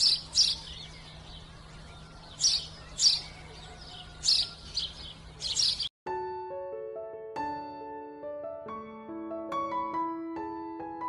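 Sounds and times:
baby chicks peeping: 0:00.0 - 0:05.9.

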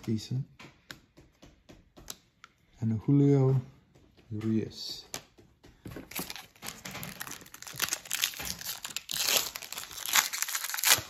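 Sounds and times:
wrapper crinkling: 0:06.0 - 0:11.0.

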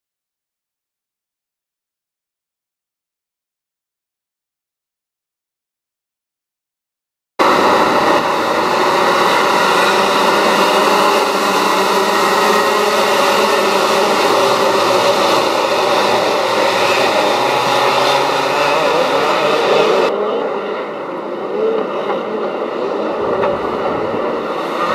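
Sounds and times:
kart engines buzzing: 0:07.4 - 0:24.9.

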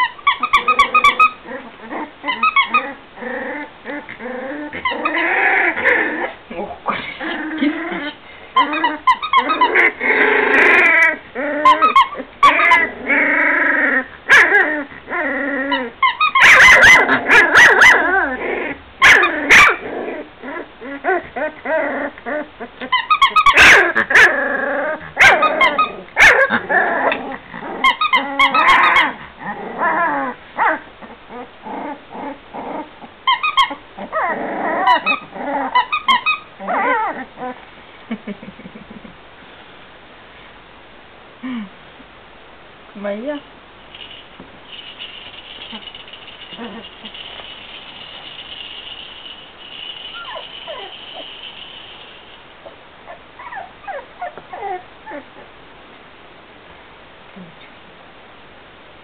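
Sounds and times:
puppies yipping and whining: 0:00.0 - 0:03.0, 0:04.4 - 0:06.4, 0:07.6 - 0:14.9, 0:15.6 - 0:19.8, 0:20.4 - 0:27.2, 0:27.8 - 0:37.6, 0:44.0 - 0:55.5
puppies barking and growling: 0:00.0 - 0:37.7, 0:43.9 - 0:55.5.

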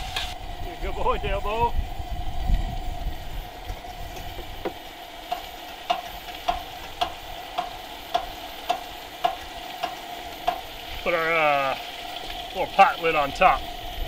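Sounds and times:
food sizzling in a wok: 0:00.0 - 0:14.0
even ticking: 0:05.3 - 0:10.8.

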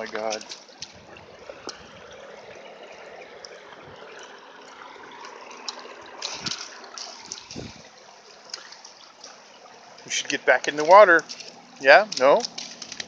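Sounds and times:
creek water over rocks: 0:00.0 - 0:13.0.

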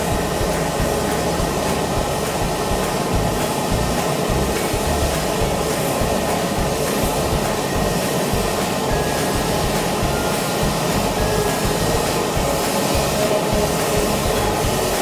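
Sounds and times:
sewage water rushing: 0:00.0 - 0:15.0.

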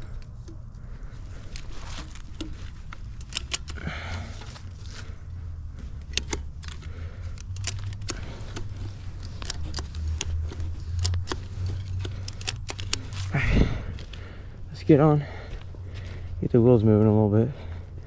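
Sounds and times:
ratchet buckle clicking: 0:02.0 - 0:04.6, 0:06.0 - 0:13.4.

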